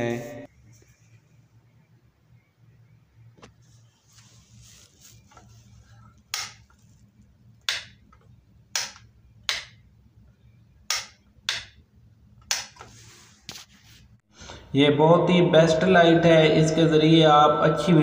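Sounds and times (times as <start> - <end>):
faint low hum: 0.0 - 18.0
light switch clicking: 8.8 - 9.8, 10.9 - 11.8.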